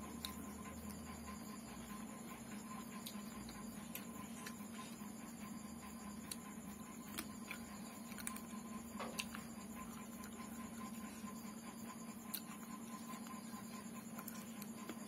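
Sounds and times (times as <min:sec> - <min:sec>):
steady low hum: 0:00.0 - 0:15.0
eating clicks and smacks: 0:02.8 - 0:04.9, 0:06.2 - 0:11.0, 0:12.2 - 0:15.0.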